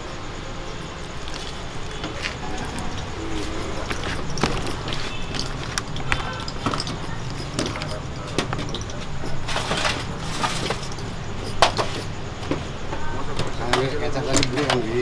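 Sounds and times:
steady low hum: 0.0s - 14.3s
background voices: 0.6s - 11.5s
wire baskets clinking on pot: 1.2s - 12.2s.

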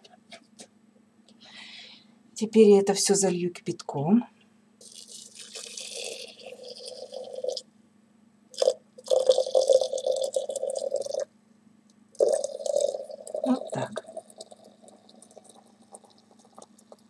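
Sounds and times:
water pouring into teapot: 4.8s - 7.6s, 8.6s - 11.3s, 12.2s - 17.0s.

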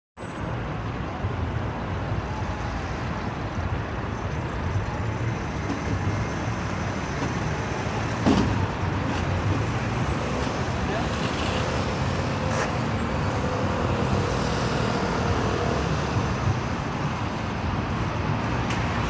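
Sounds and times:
city road traffic: 0.2s - 19.0s.

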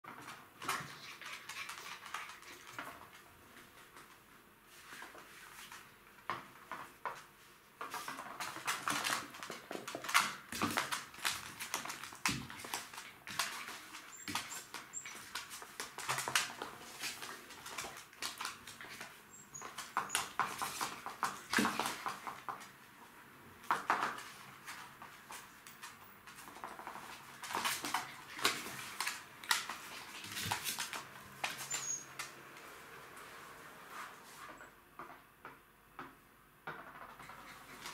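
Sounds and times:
claws scrabbling on floor: 23.7s - 32.4s.

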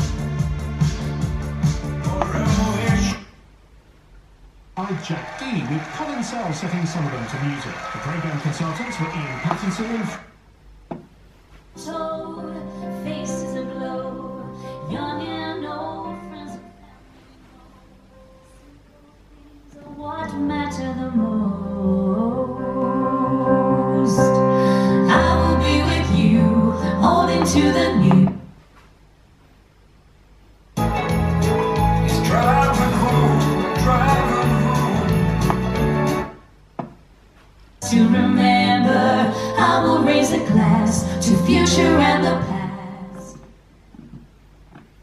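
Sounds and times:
pop song with singer and guitar: 1.9s - 3.2s, 19.8s - 28.4s, 30.9s - 35.9s, 37.8s - 43.4s
radio music through speaker: 2.1s - 3.2s.

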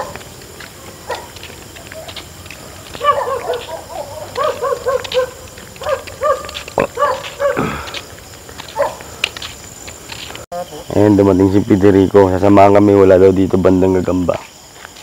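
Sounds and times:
dog yelping barks: 1.1s - 2.2s, 2.8s - 7.6s, 8.7s - 9.0s.

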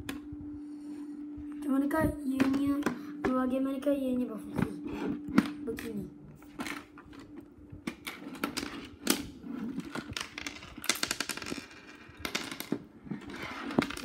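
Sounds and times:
plastic pieces clicking and knocking: 7.9s - 14.0s.

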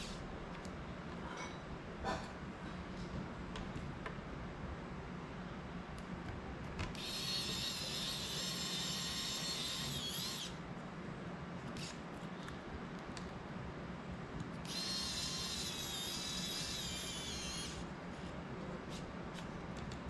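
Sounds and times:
electric screwdriver whirring: 6.9s - 10.6s, 14.6s - 17.8s.

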